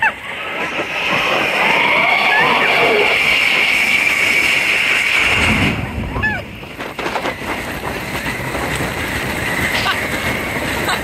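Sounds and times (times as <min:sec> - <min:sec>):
roller coaster train rumbling: 0:00.0 - 0:11.0
riders screaming: 0:01.5 - 0:05.0.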